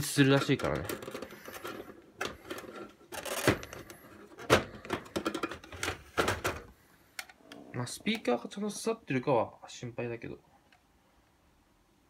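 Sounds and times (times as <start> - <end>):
plastic clicks and knocks: 0.4 - 7.4.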